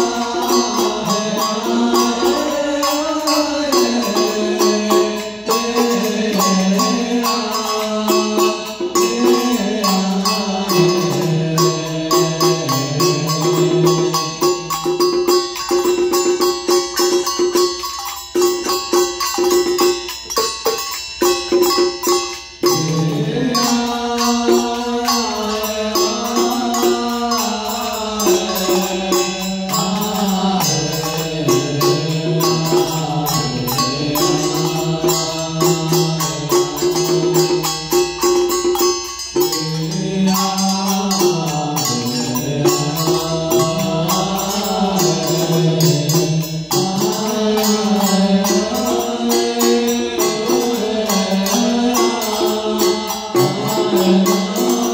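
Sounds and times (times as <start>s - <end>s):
person chanting slowly: 0.0s - 20.1s, 21.5s - 54.9s
fast ritual percussion: 0.0s - 54.9s.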